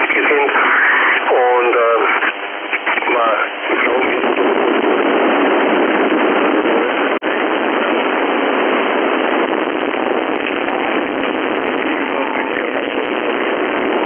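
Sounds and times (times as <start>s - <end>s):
radio static hiss: 0.0s - 14.0s.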